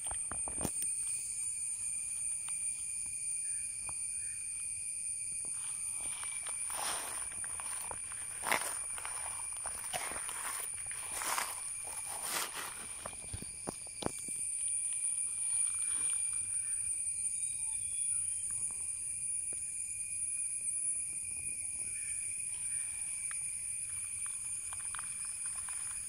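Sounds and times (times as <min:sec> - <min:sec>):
insects singing: 0:00.0 - 0:26.0
footsteps on gravel: 0:05.8 - 0:13.6.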